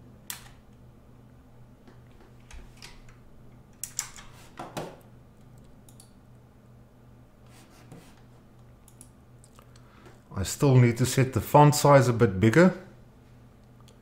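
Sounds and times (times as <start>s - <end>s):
faint low hum: 0.0s - 14.0s
computer keyboard clicks: 3.8s - 4.3s, 5.4s - 6.2s, 8.8s - 9.6s.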